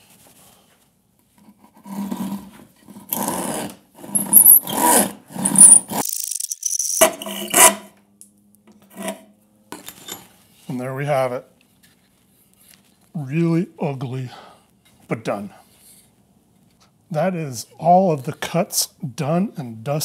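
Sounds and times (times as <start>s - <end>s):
hand saw cutting wood: 1.7s - 6.0s, 8.8s - 9.3s.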